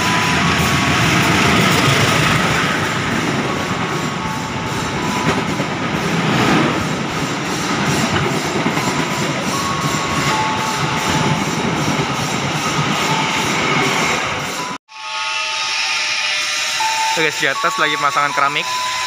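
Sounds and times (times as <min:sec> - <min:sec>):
train wheels clattering over rails: 0:00.0 - 0:14.6
diesel locomotive passing: 0:00.0 - 0:19.0.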